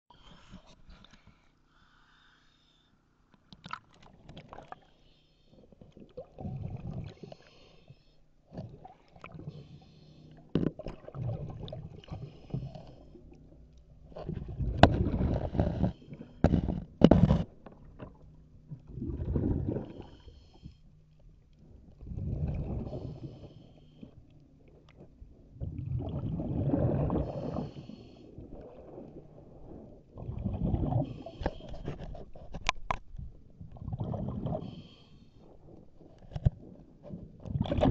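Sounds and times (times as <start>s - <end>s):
exhaled bubbles gurgling: 5.8s - 7.7s, 8.5s - 10.0s, 10.6s - 13.0s, 14.1s - 17.4s, 18.7s - 20.4s, 21.8s - 23.7s, 25.5s - 31.7s, 33.6s - 34.9s, 35.6s - 37.9s
regulator inhale hiss: 7.2s - 8.2s, 9.5s - 10.4s, 22.8s - 24.2s, 27.2s - 28.3s, 34.6s - 35.5s.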